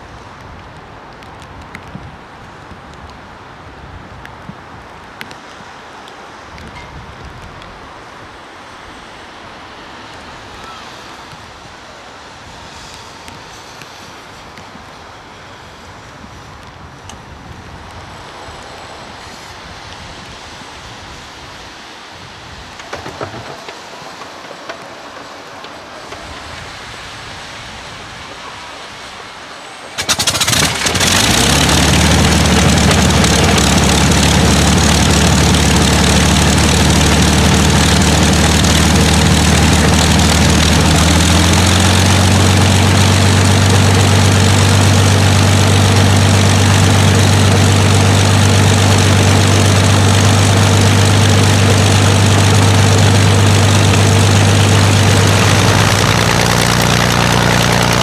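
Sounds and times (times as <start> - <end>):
aircraft engine starting and running: 29.1 - 58.0.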